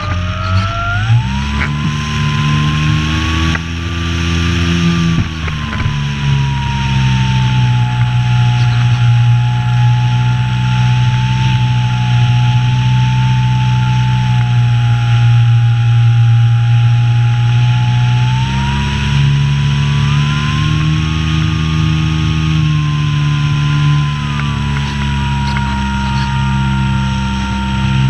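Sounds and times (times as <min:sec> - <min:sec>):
model plane motor droning: 0:00.0 - 0:28.0.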